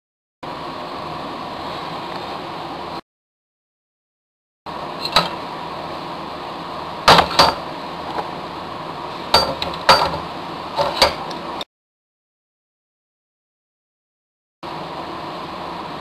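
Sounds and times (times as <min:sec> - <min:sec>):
workshop hiss: 0:00.5 - 0:03.0, 0:04.7 - 0:11.6.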